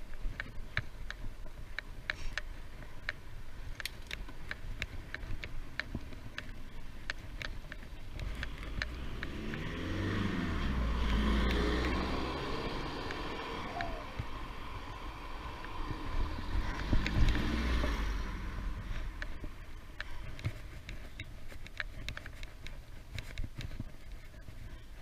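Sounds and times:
low rumble: 8.0 - 20.8
car passing by: 8.4 - 19.3.

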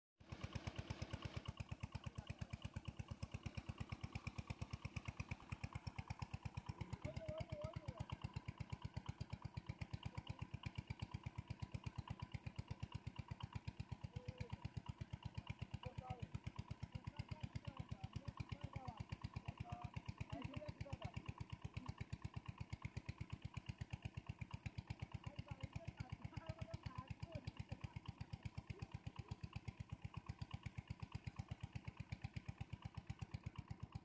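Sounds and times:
water pump engine chugging: 0.2 - 34.0.

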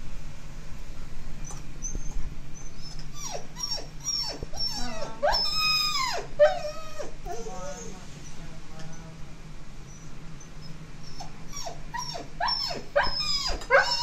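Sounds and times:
dog whining: 1.4 - 8.4, 9.8 - 14.0.

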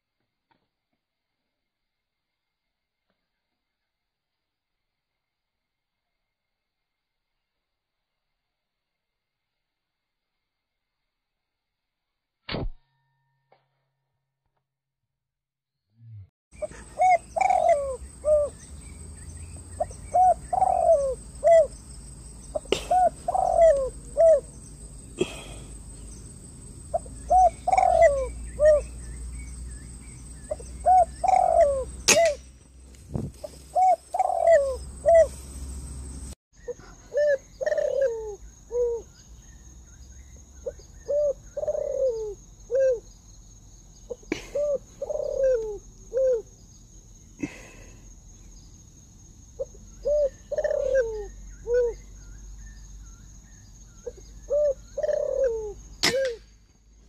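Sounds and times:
doves cooing: 16.6 - 21.8, 22.5 - 29.2, 30.3 - 32.4, 33.3 - 35.4, 37.1 - 39.1, 41.0 - 43.0, 44.3 - 46.5, 50.0 - 52.0, 54.1 - 56.4.

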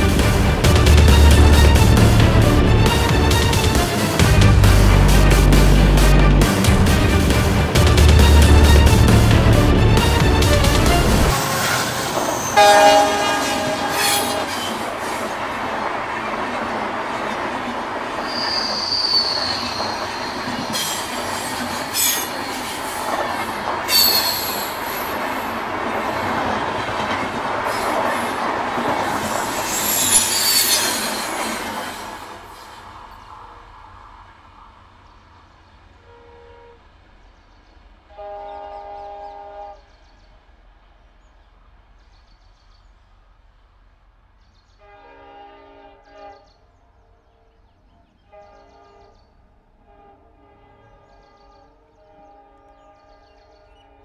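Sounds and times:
distant train horn blasts: 0.0 - 15.3, 28.9 - 32.8, 36.0 - 37.1, 38.0 - 40.2, 44.7 - 54.0
train coaches rumbling past: 0.0 - 54.0
wheel and rail squeals: 11.3 - 15.2, 18.2 - 25.3, 28.9 - 32.9.

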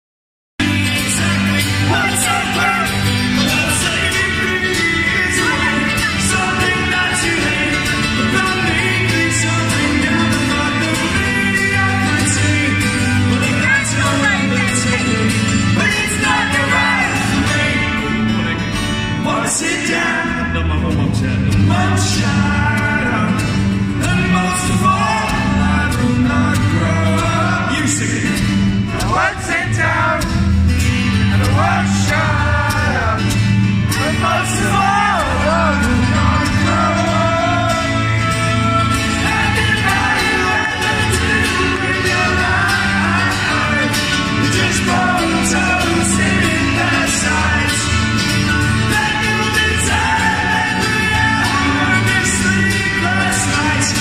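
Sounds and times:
man singing into a microphone: 0.6 - 30.3, 31.3 - 54.0
acoustic guitar: 0.6 - 54.0.

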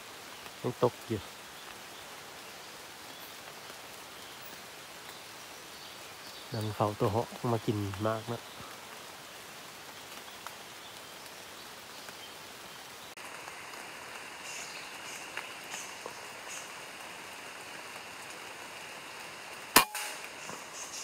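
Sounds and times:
rain on forest canopy: 0.0 - 21.0
air rifle shot: 19.8 - 20.3.

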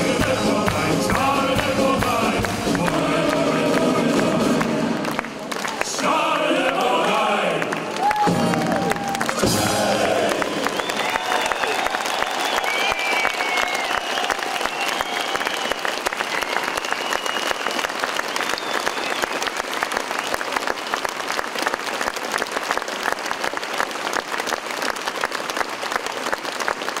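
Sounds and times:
audience applauding: 0.0 - 27.0.

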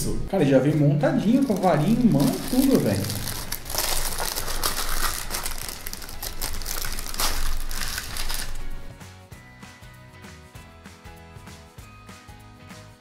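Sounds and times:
background music: 0.0 - 13.0
plastic wrapping crinkling: 1.2 - 8.9.

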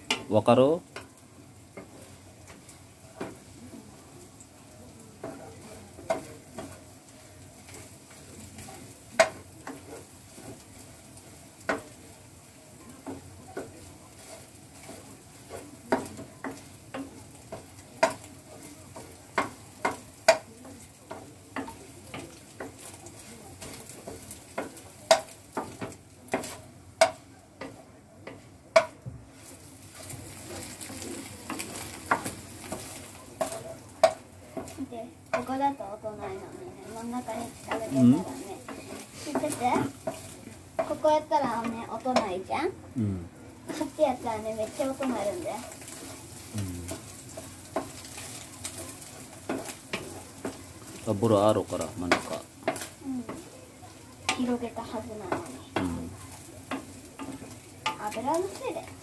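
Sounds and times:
egg sizzling: 0.0 - 59.0
spatula scraping frying pan: 5.1 - 42.9, 43.5 - 59.0
spatula knocking against pan: 15.5 - 18.3, 19.0 - 20.5, 23.6 - 29.2, 31.5 - 35.6.

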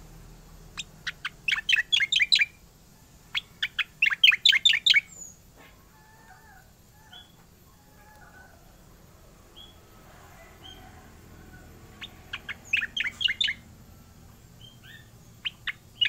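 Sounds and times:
bird singing whistled notes: 0.8 - 2.6, 3.3 - 5.4, 9.6 - 9.8, 12.0 - 13.7, 14.5 - 16.0.

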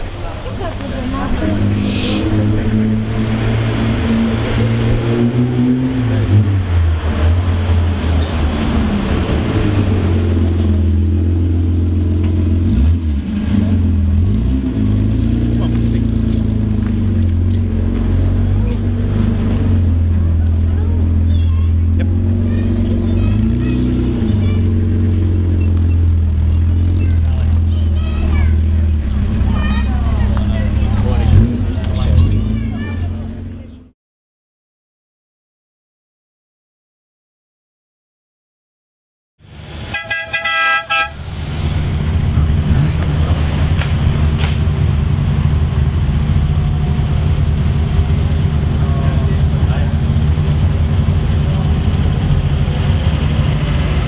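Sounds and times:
car engine running: 0.0 - 33.9, 39.5 - 54.0
car horn toots: 39.9 - 41.2.

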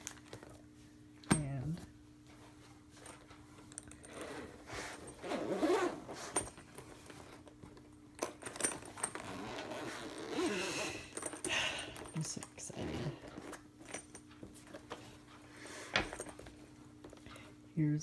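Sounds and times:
zipper pulled open: 4.0 - 6.5, 8.7 - 11.2, 12.7 - 13.6.

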